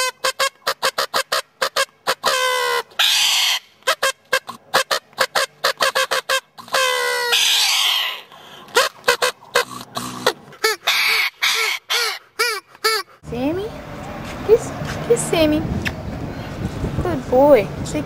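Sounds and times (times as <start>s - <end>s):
cockatoo screeching: 0.0s - 13.1s
party blower toots: 8.7s - 11.2s, 12.0s - 13.1s.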